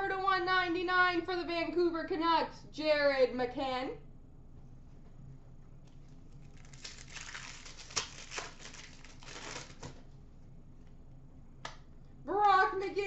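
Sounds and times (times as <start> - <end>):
foil wrapper crinkling and tearing: 6.3 - 10.0.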